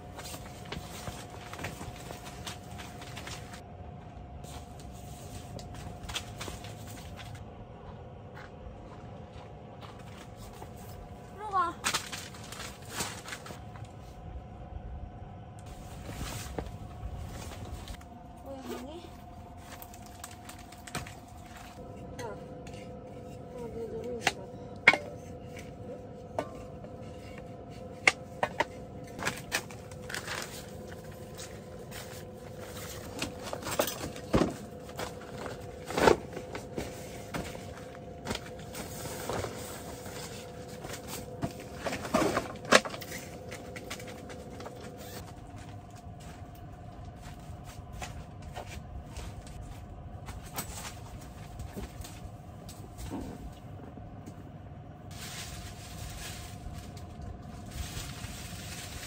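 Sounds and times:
shuffling and rustling: 0.0s - 3.6s, 8.8s - 14.2s, 15.7s - 24.4s, 25.0s - 53.8s, 55.1s - 59.0s
steady hum: 0.0s - 59.0s.

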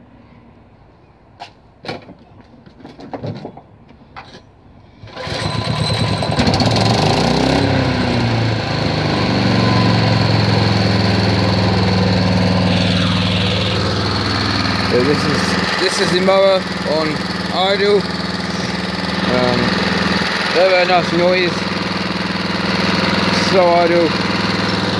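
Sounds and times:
knocks and rattles: 1.8s - 4.5s
lawn mower engine running: 5.0s - 24.9s.

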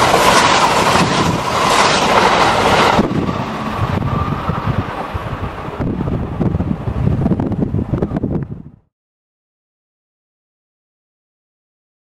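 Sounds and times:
train passing at speed: 0.0s - 8.8s
wind on microphone: 0.2s - 8.9s.

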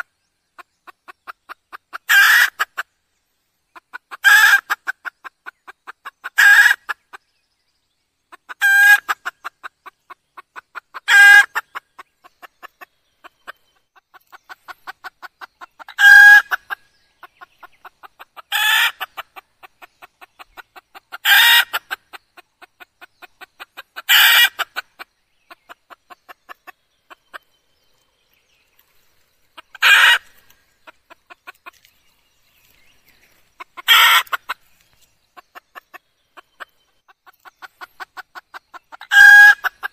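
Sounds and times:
hen calling: 18.4s - 19.2s, 29.6s - 31.8s, 33.6s - 34.6s.

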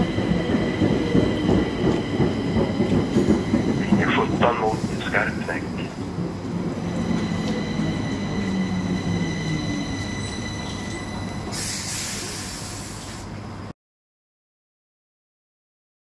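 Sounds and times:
metro train rumble and whine: 0.0s - 13.7s
hiss: 11.5s - 13.4s.

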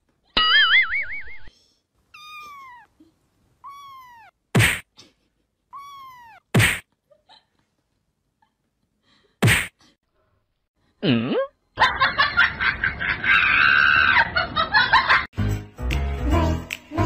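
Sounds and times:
sharp slap: 4.6s - 4.9s, 6.5s - 6.8s, 9.4s - 9.8s
pulsing laughter: 11.8s - 15.3s.

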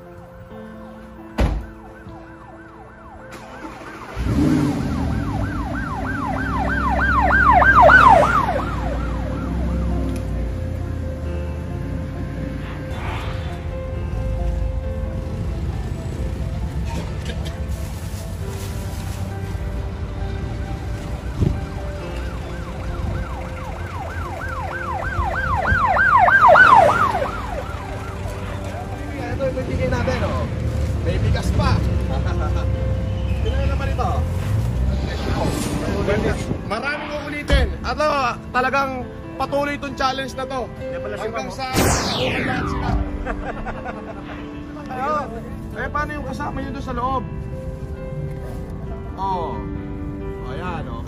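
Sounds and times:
low traffic rumble: 0.0s - 39.4s
thump: 1.4s - 1.7s
car door shutting: 1.4s - 1.8s
siren whooping: 1.7s - 10.0s, 22.3s - 28.4s, 41.8s - 44.1s.

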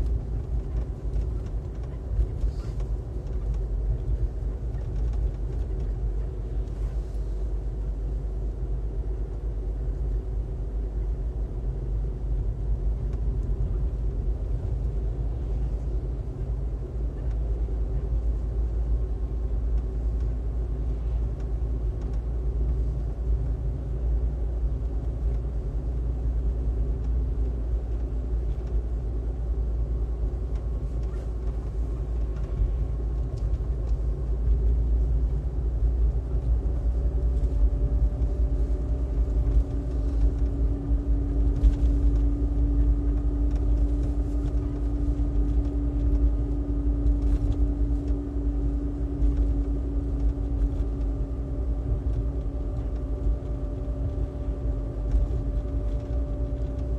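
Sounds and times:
engine and tyre rumble: 0.0s - 56.9s
steady hum: 0.0s - 56.9s.

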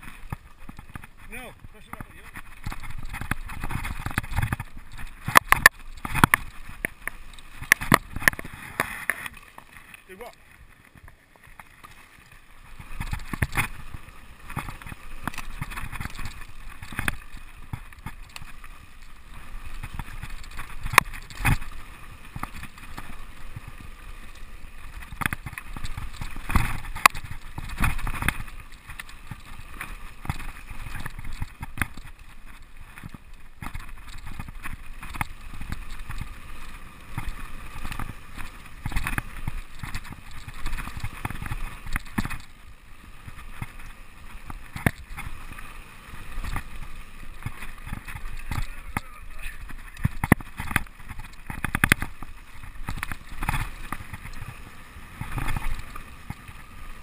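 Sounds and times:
bike knocks and rattles: 0.0s - 8.9s, 37.1s - 42.5s, 47.4s - 54.5s
bike tyres rushing on gravel: 0.0s - 57.0s.

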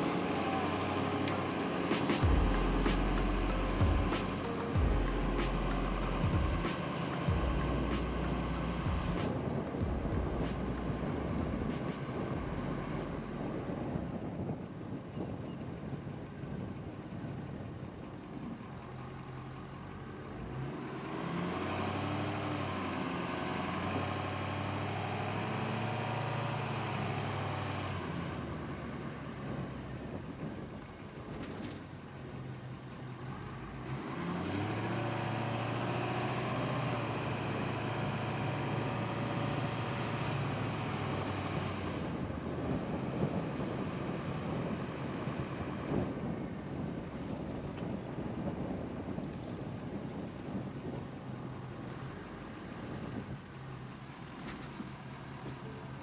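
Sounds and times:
car engine accelerating: 0.0s - 14.1s, 19.0s - 29.7s, 33.1s - 46.5s
road noise: 0.0s - 56.0s.

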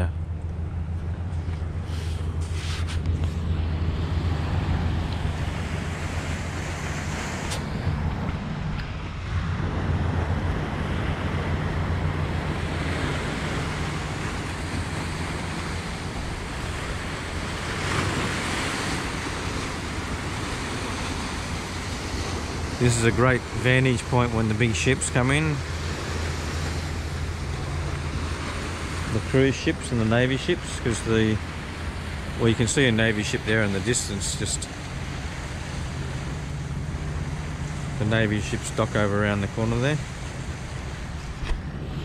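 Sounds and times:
surf hiss: 1.4s - 42.0s
waves breaking on rocks: 10.1s - 41.8s.

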